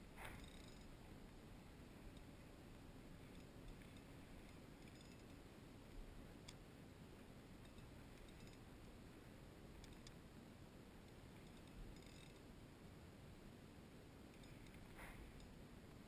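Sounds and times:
light ticking: 0:02.0 - 0:06.7, 0:09.8 - 0:10.2, 0:11.0 - 0:12.5.

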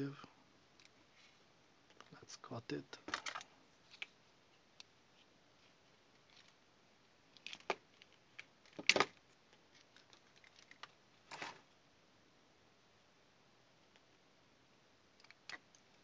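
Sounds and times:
clicks and rattles of handling wires: 0:02.9 - 0:04.2, 0:04.8 - 0:06.6, 0:07.3 - 0:11.6, 0:15.2 - 0:16.0.

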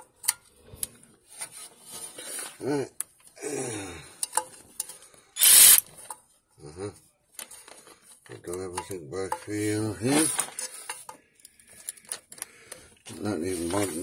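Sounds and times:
man grunting: 0:02.7 - 0:04.0
hand tools clicking on bolts: 0:05.4 - 0:05.8.

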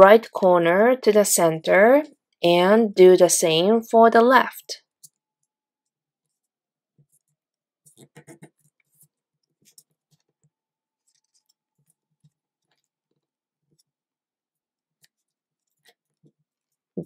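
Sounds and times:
paper being folded: 0:11.0 - 0:13.9
paper rustling: 0:11.0 - 0:13.9.

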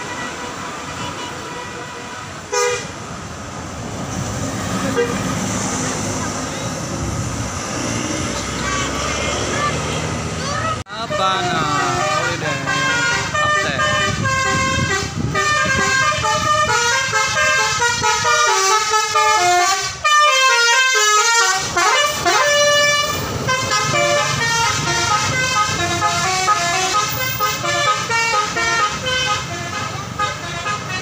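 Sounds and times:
multi-tone air horn melody: 0:00.0 - 0:02.9, 0:04.8 - 0:05.4, 0:11.0 - 0:31.0
bus engine running: 0:00.0 - 0:31.0.

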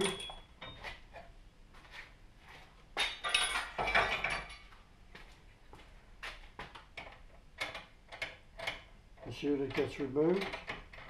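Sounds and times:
metallic ring: 0:00.0 - 0:00.9
metal parts clattering and scraping: 0:03.0 - 0:04.7.

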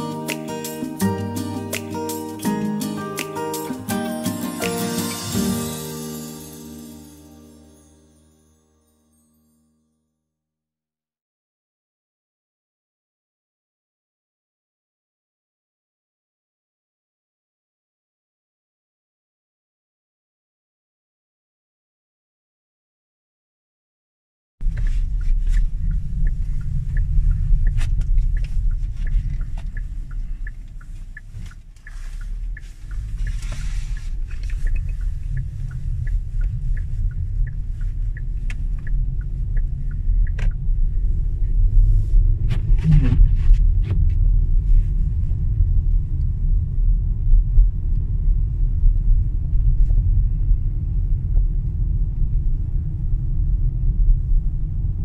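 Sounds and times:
tyre and road rumble: 0:24.6 - 0:55.0.

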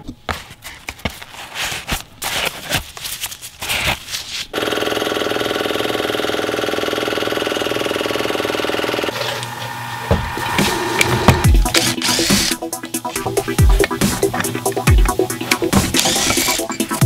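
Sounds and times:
air compressor running: 0:04.5 - 0:17.0
power drill working: 0:04.6 - 0:17.0
electronic music with deep bass: 0:10.4 - 0:17.0.

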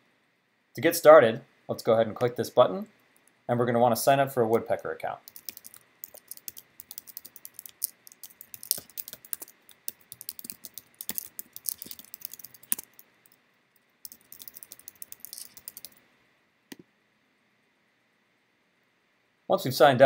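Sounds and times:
typing on computer keyboard: 0:05.2 - 0:13.0, 0:14.0 - 0:16.0
mouse click: 0:16.7 - 0:16.9.

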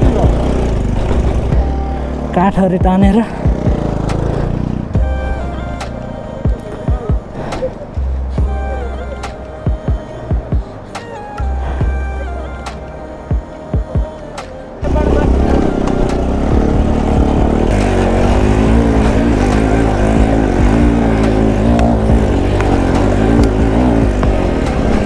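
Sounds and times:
motorcycle engine running: 0:00.0 - 0:09.1, 0:14.8 - 0:25.0
background music of held notes: 0:00.0 - 0:25.0.

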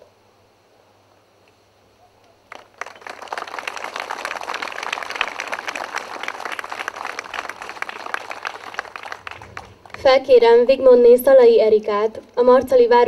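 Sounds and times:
audience applauding: 0:02.5 - 0:10.1.

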